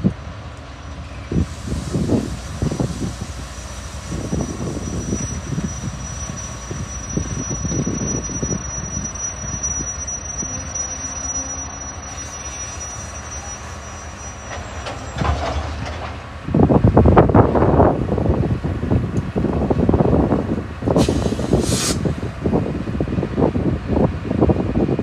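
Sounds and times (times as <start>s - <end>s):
diesel locomotive engines rumbling: 0.0s - 25.0s
high steady squeal: 0.8s - 15.3s.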